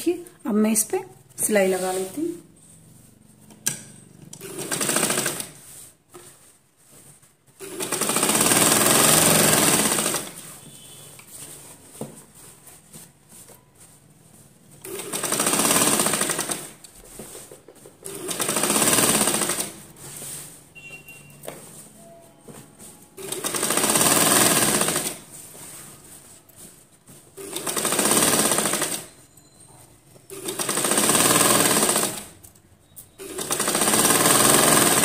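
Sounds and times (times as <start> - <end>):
sewing machine stitching: 3.6 - 5.8, 7.6 - 10.9, 14.8 - 17.4, 18.0 - 20.0, 23.2 - 25.3, 27.4 - 29.3, 30.3 - 32.5, 33.1 - 35.0.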